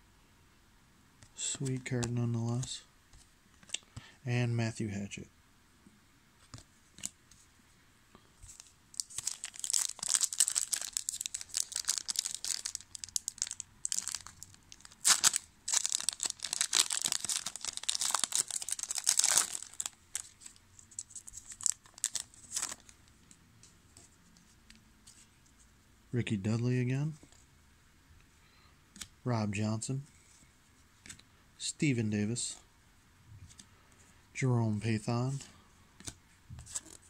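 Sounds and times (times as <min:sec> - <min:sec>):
foil wrapper crinkling and tearing: 0:08.5 - 0:22.9.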